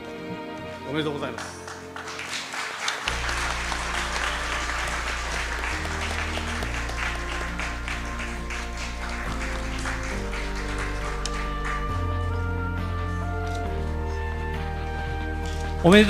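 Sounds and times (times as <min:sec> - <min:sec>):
background music: 0:00.0 - 0:16.0
audience applauding: 0:00.6 - 0:12.5.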